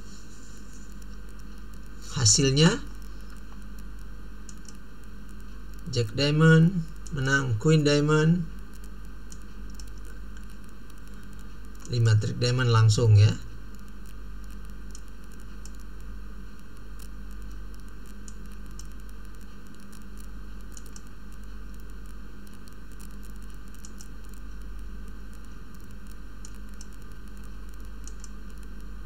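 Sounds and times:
low mains hum: 0.0s - 29.0s
microphone hiss: 0.0s - 29.0s
computer mouse clicks: 4.4s - 4.8s, 8.8s - 12.0s, 13.8s - 15.9s, 17.0s - 21.9s, 22.5s - 24.4s, 25.3s - 28.7s.

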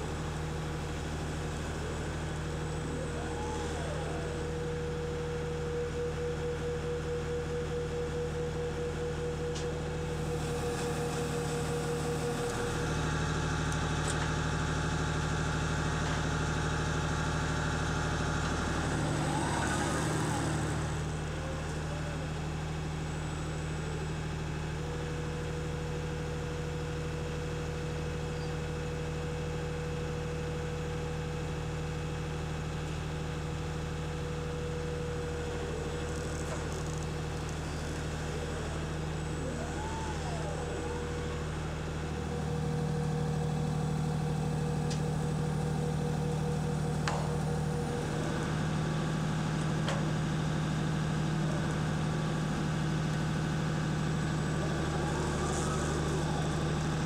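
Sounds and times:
constant whine: 0.0s - 26.6s, 34.1s - 57.0s
engine humming at idle: 0.0s - 57.0s
rising and falling whines: 2.7s - 5.4s, 35.6s - 49.2s.

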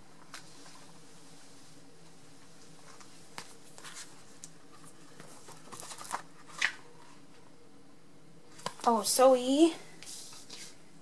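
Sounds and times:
low room hum: 0.0s - 11.0s
items rustling on table: 2.3s - 7.4s.

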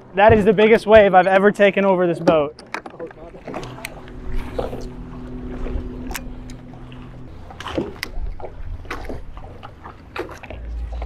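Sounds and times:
choppy water around boat: 0.0s - 11.0s
sharp clicks and knocks: 2.2s - 4.9s
electric motor humming: 3.3s - 11.0s.

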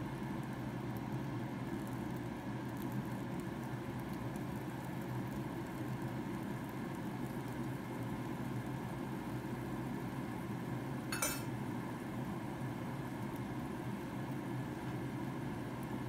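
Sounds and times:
low kitchen hum: 0.0s - 16.0s
kitchenware clink: 11.1s - 11.5s.

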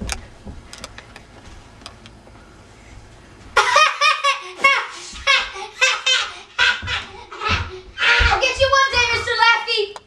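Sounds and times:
child yelling: 8.0s - 10.0s.

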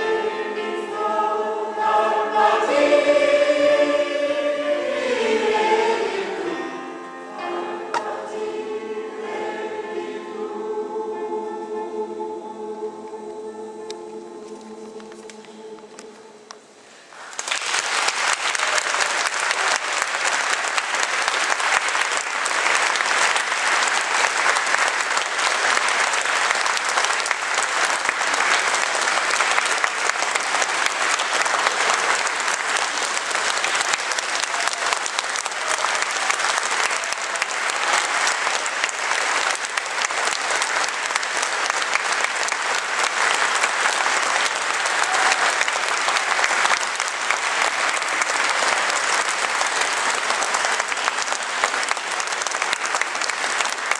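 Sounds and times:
choir singing: 0.0s - 16.6s
audience applauding: 17.1s - 53.9s.

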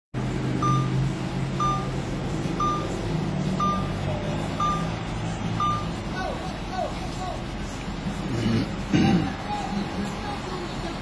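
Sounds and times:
street traffic: 0.2s - 11.0s
vehicle engine running: 0.2s - 11.0s
short high electronic beep: 0.6s - 1.0s, 1.6s - 1.9s, 2.6s - 3.0s, 3.6s - 4.0s, 4.6s - 4.9s, 5.6s - 6.0s.

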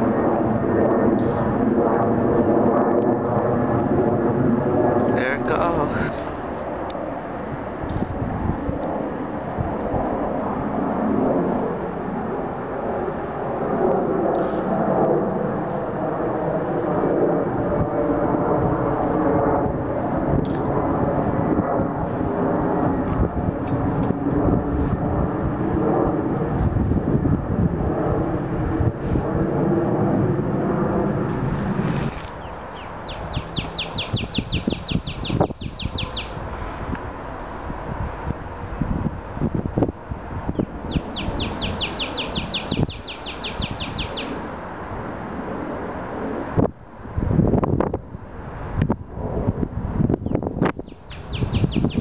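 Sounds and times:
jet engine roar: 0.0s - 52.0s.

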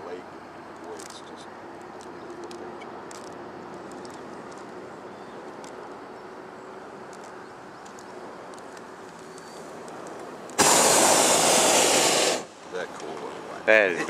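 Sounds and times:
high bird chirps: 9.2s - 9.8s.

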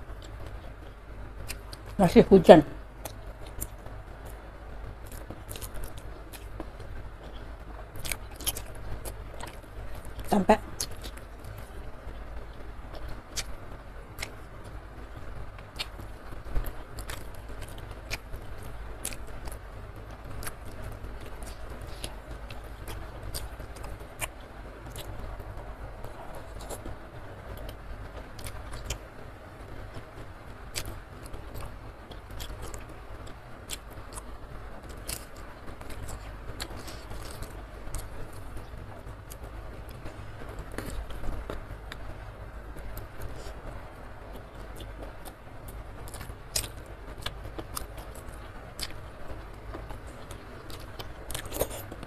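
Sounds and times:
chewing with wet mouth clicks: 8.0s - 11.7s, 15.6s - 16.0s, 19.0s - 19.6s, 46.1s - 49.1s, 49.8s - 52.0s.

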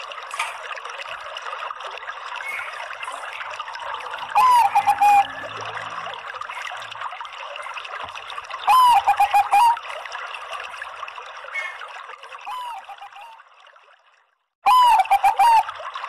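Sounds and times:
dove cooing: 4.1s - 5.7s, 8.7s - 9.8s, 12.5s - 13.3s, 14.7s - 15.7s.

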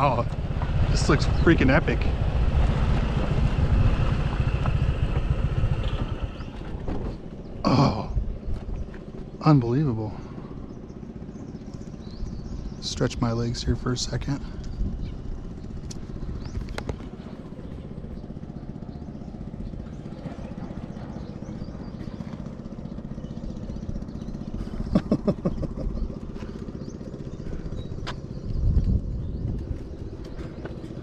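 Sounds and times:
vehicle passing: 0.0s - 6.5s
low rumble: 0.0s - 31.0s
motorcycle engine idling: 0.0s - 31.0s.

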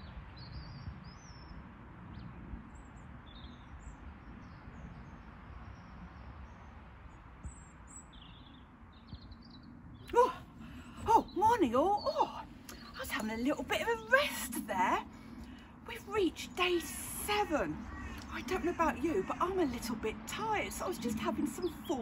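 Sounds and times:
low outdoor hum: 0.0s - 22.0s
birds chirping: 7.4s - 22.0s
woman's voice: 10.1s - 22.0s.

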